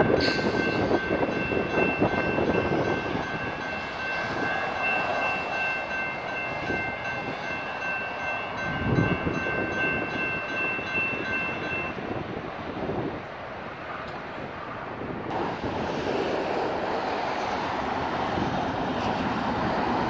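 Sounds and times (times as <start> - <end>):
wind on microphone: 0.0 - 7.8, 8.4 - 20.0
electronic crossing bells ringing: 0.0 - 12.0
rushing noise: 14.6 - 20.0.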